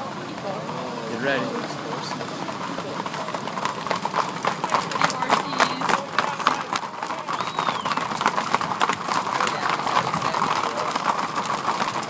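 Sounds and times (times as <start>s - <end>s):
hooves clopping on pavement: 0.0s - 12.0s.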